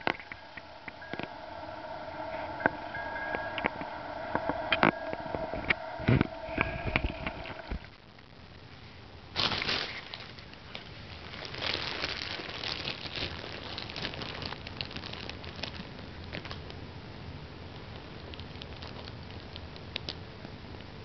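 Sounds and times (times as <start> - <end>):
fabric tunnel rustling and crinkling: 8.8 - 16.9, 17.7 - 19.6.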